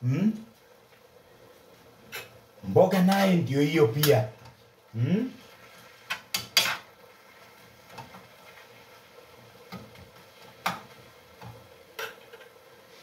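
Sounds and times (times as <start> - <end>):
metal spatula scraping frying pan: 5.7 - 6.9.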